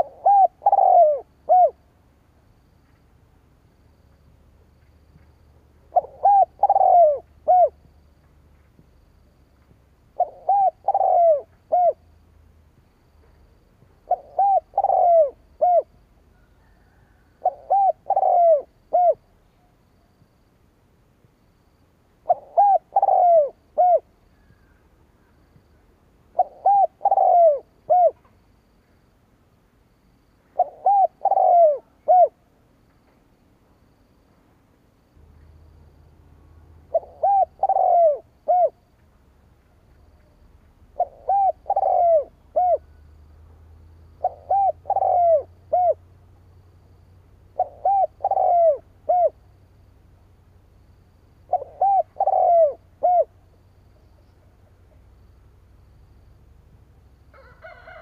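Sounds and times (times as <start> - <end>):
dove cooing: 0.0 - 1.9, 5.8 - 7.9, 10.1 - 12.1, 14.0 - 19.7, 22.2 - 24.8, 26.3 - 28.3, 30.6 - 32.4, 36.8 - 38.9, 40.9 - 43.0, 44.2 - 46.2, 47.6 - 49.4, 51.5 - 53.4.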